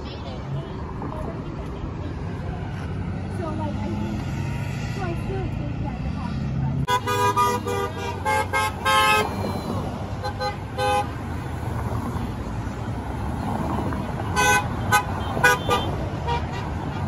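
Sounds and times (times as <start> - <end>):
cars driving by: 0.0 - 17.0
car horns honking: 6.9 - 11.4, 14.0 - 17.0.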